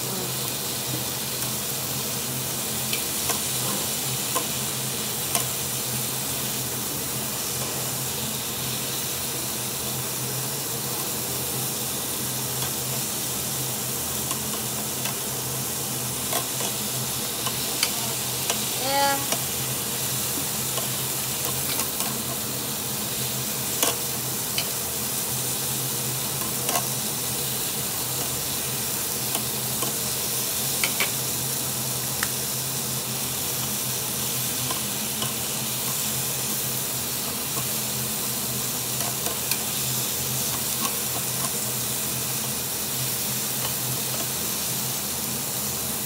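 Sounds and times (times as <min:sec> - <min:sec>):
meat sizzling on a grill: 0:00.0 - 0:46.0
metal tongs clicking on grill: 0:04.3 - 0:04.5, 0:05.2 - 0:05.6, 0:14.2 - 0:15.2, 0:16.2 - 0:16.8, 0:17.4 - 0:19.5, 0:20.7 - 0:22.3, 0:23.8 - 0:24.8, 0:26.4 - 0:27.0, 0:29.3 - 0:30.0, 0:30.8 - 0:31.2, 0:34.6 - 0:36.0, 0:39.0 - 0:39.8, 0:40.5 - 0:41.6, 0:43.6 - 0:44.4.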